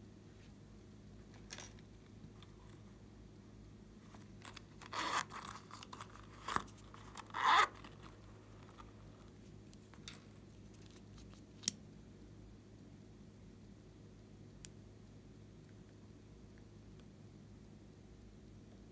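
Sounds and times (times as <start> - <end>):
zipper being pulled: 4.2 - 9.0.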